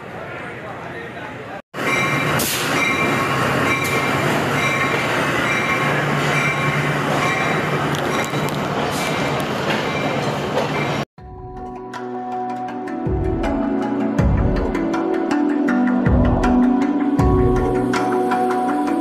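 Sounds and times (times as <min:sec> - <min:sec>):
train wheels rumbling on rails: 0:01.8 - 0:11.1
music: 0:11.2 - 0:19.0.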